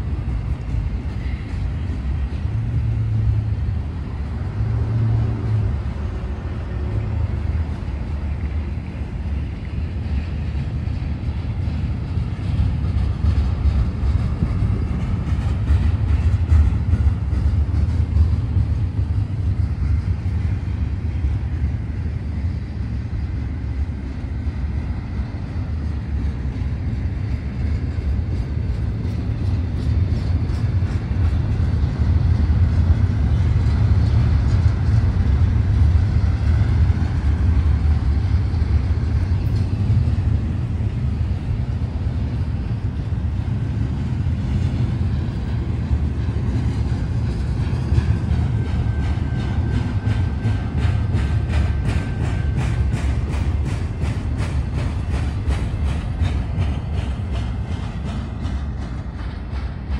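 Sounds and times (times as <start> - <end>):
train wheels rumbling on rails: 0.0 - 59.9.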